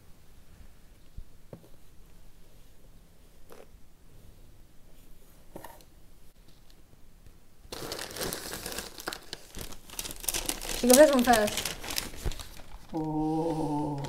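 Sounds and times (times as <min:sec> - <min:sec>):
packaging crinkling: 0:07.7 - 0:13.2.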